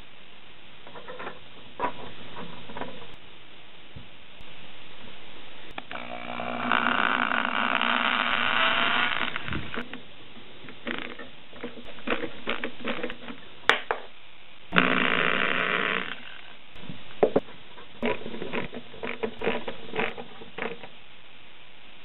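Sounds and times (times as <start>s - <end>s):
cordless drill whining: 5.8s - 9.8s, 14.8s - 16.5s.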